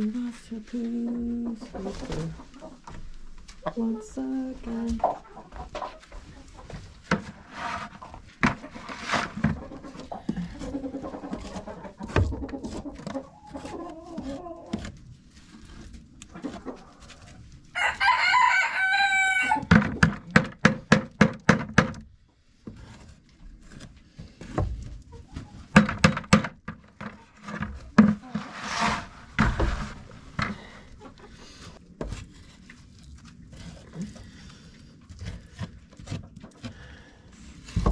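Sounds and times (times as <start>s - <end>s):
hens clucking: 1.1s - 15.1s, 16.2s - 20.4s, 25.0s - 31.8s
rooster crowing: 17.8s - 19.7s.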